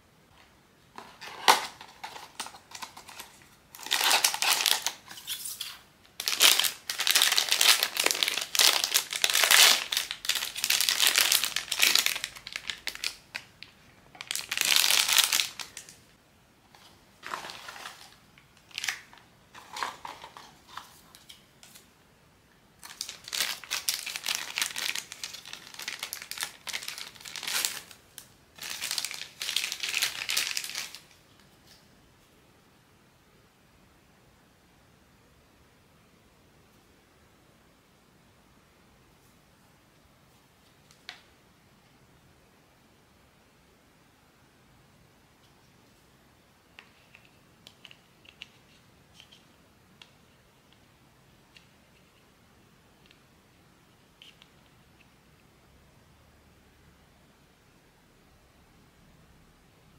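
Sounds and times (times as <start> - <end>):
plastic packaging crinkling: 1.2 - 16.0, 17.2 - 21.8, 22.8 - 31.2.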